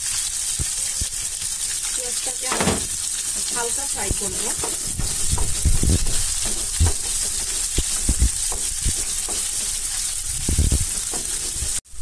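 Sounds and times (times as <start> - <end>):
onions sizzling in hot oil: 0.0 - 12.0
wooden spatula scraping pan: 2.4 - 11.8.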